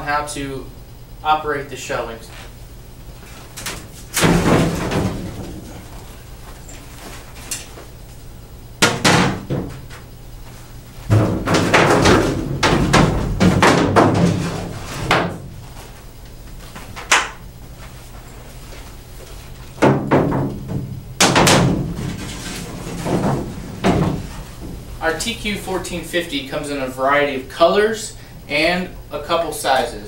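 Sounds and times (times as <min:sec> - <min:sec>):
cart shelf panels knocking: 0:03.6 - 0:05.9, 0:08.8 - 0:10.1, 0:11.0 - 0:15.7, 0:19.8 - 0:24.9.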